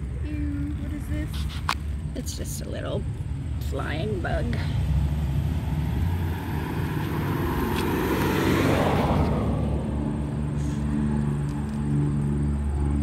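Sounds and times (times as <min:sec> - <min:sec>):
steady low rumble: 0:00.0 - 0:13.0
vehicle passing by: 0:04.2 - 0:13.0.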